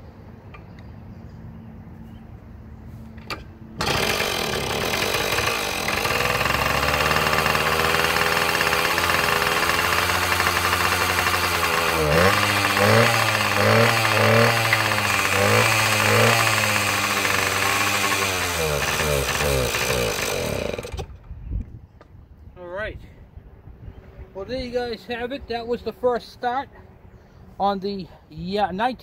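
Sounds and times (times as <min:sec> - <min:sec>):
motorcycle kick start: 0:03.2 - 0:21.3
two-stroke engine running and revving: 0:03.8 - 0:21.2.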